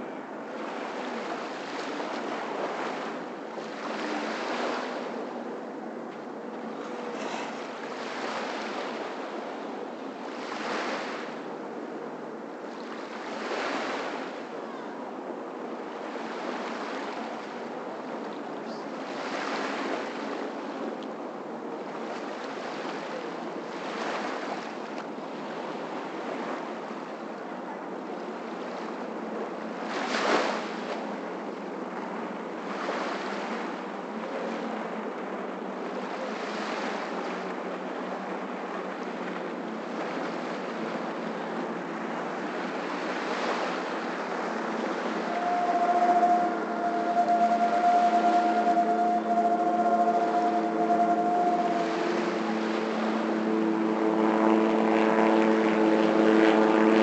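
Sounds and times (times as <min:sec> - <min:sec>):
waves lapping on sandy shore: 0:00.0 - 0:57.0.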